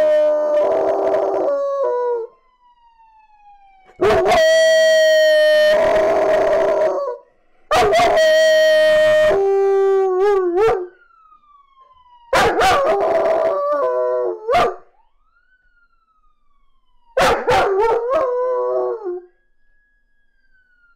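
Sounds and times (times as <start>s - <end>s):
faint police siren: 0.0s - 20.9s
puppy howling: 4.0s - 10.9s, 12.4s - 14.8s, 17.2s - 19.3s.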